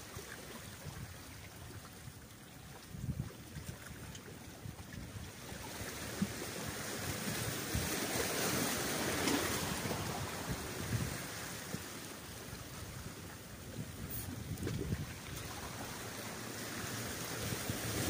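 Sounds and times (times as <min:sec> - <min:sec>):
sea waves washing against rocks: 0:02.9 - 0:18.0
wind gusting on microphone: 0:07.0 - 0:16.2.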